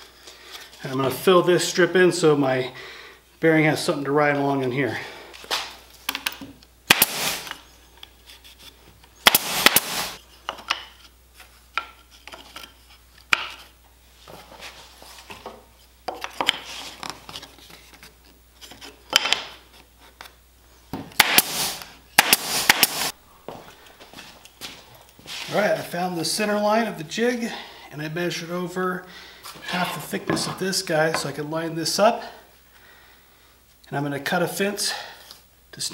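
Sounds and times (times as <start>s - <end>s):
pneumatic nailer shots: 6.9s - 7.6s, 9.2s - 10.2s, 21.1s - 23.2s.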